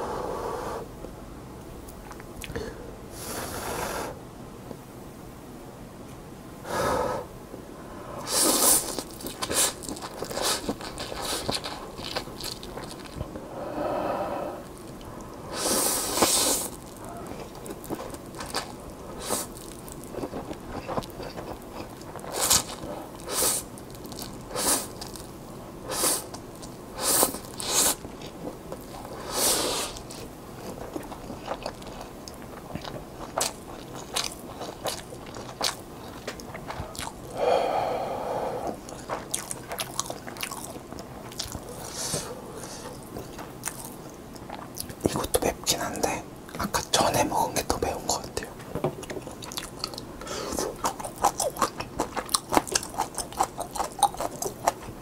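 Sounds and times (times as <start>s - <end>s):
wet chewing and lip smacks: 38.8s - 42.0s, 49.0s - 55.0s.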